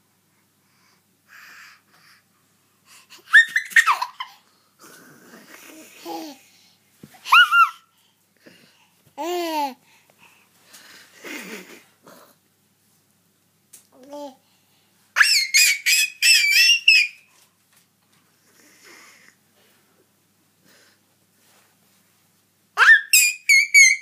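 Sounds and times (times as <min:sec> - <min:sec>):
baby laughing and babbling: 0:03.1 - 0:04.4, 0:05.3 - 0:06.6, 0:07.2 - 0:08.0, 0:09.2 - 0:09.8
baby lower call: 0:07.2 - 0:07.9, 0:22.8 - 0:24.0
baby high-pitched squeals: 0:07.3 - 0:07.8, 0:15.2 - 0:17.3, 0:22.8 - 0:24.0.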